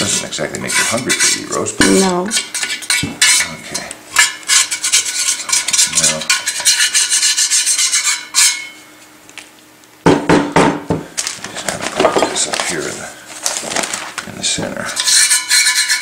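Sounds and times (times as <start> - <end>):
knife scraping metal boiler: 0.0 - 8.8, 14.8 - 16.0.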